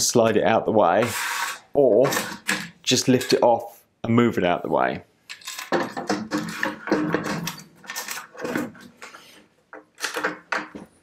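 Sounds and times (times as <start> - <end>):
metal scraping: 1.0 - 3.5.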